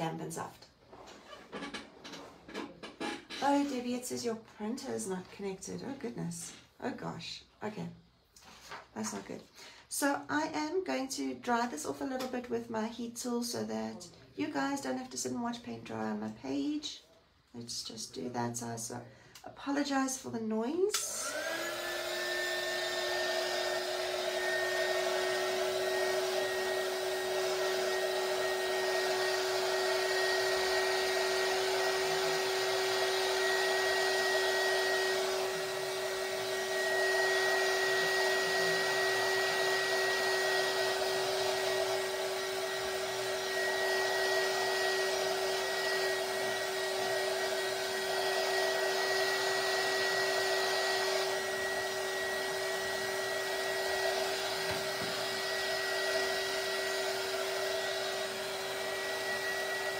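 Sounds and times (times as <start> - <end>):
heat tool fan humming and whining: 20.9 - 59.9.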